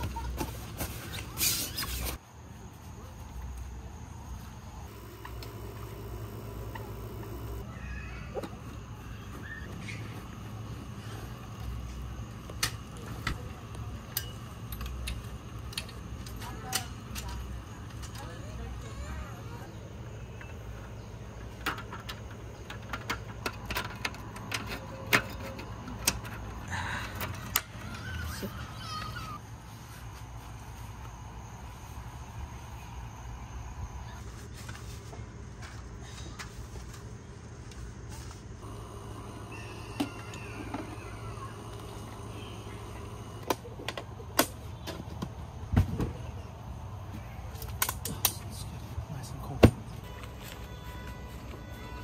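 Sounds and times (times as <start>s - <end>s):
steady low hum: 2.1s - 51.6s.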